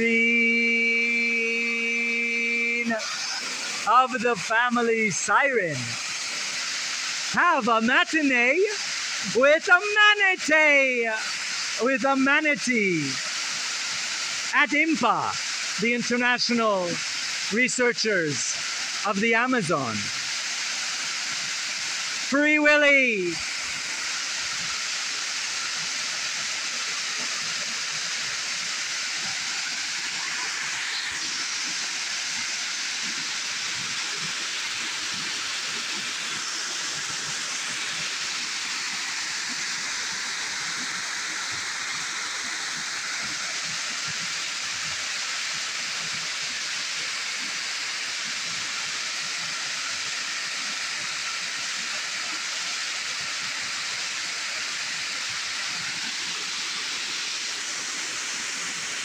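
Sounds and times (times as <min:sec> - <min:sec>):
small waterfall splashing: 0:00.0 - 0:59.0.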